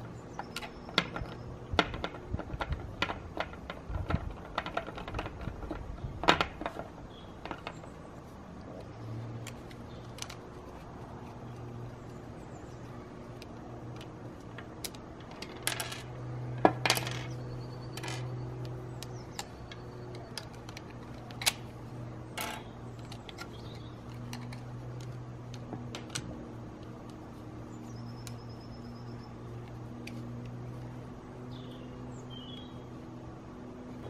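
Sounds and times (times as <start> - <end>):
plastic parts clicking and knocking: 0.4 - 7.9, 13.3 - 21.7.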